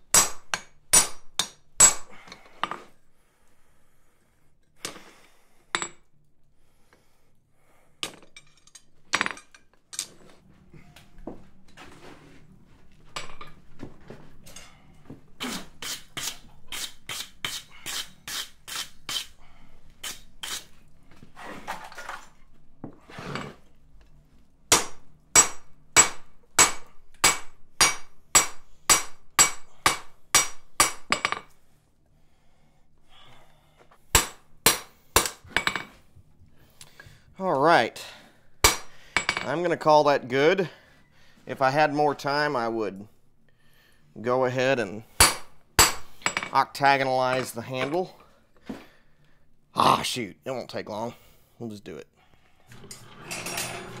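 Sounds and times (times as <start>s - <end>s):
hammer striking steel on anvil: 0.1s - 2.1s, 24.7s - 31.5s, 34.1s - 35.8s, 38.6s - 39.5s, 45.2s - 46.6s.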